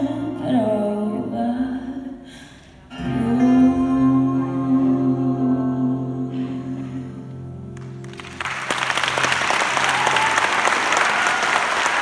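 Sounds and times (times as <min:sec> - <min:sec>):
audience applause: 0:07.8 - 0:12.0.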